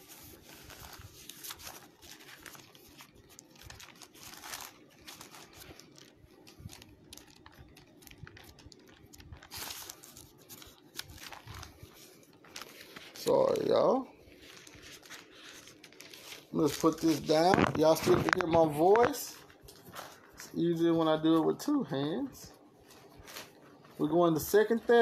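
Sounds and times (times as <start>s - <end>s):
thin pages rustling: 0.0s - 20.6s, 22.5s - 25.0s
page turning swishes: 6.6s - 20.6s, 22.8s - 24.1s.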